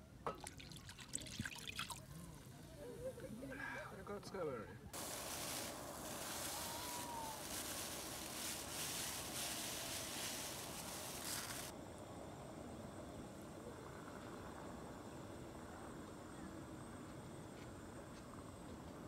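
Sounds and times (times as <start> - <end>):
steady hiss: 1.9 - 18.1
plastic bag crinkling: 5.0 - 11.7
rice pouring into sauce: 5.0 - 11.7.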